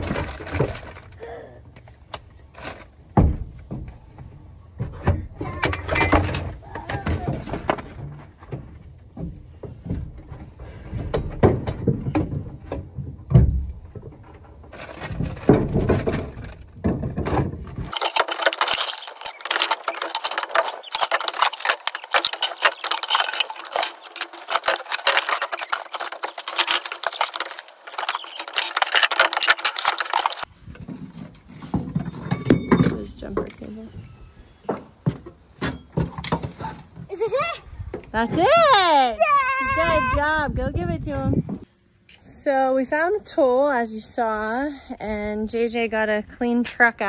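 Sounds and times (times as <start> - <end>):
shovel scraping in truck bed: 17.2 - 32.3.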